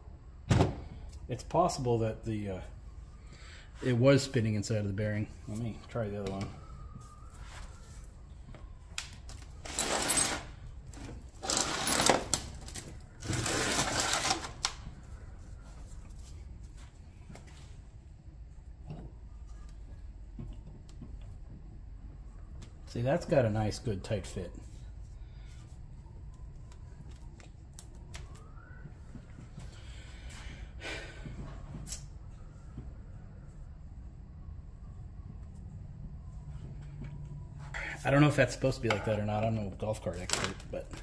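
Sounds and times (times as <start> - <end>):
metal motor parts rattling: 11.4 - 12.6.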